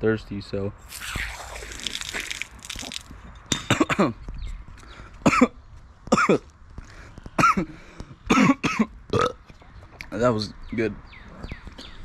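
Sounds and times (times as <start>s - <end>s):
man coughing: 3.7s - 4.2s, 5.2s - 6.4s, 7.4s - 7.7s, 8.3s - 8.9s.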